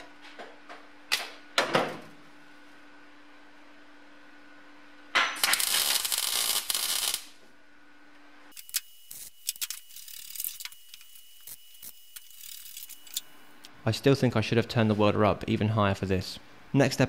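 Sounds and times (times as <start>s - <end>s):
welding arc crackling: 5.4s - 7.4s, 8.5s - 13.6s.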